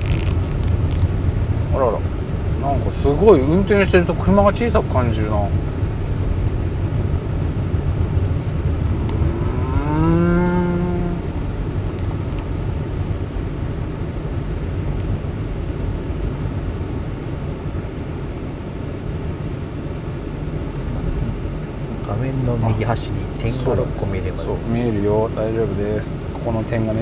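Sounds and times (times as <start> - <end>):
low road rumble in car cabin: 0.0 - 27.0
person humming rising mmm: 8.9 - 11.4.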